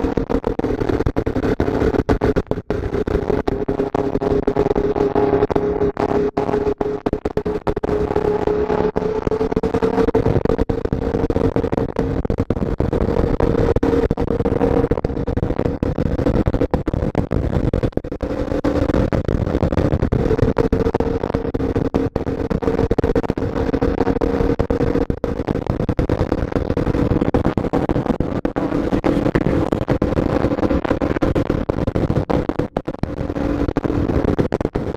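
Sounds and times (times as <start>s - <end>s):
motorbike engine cruising: 0.0s - 10.6s, 28.5s - 31.4s.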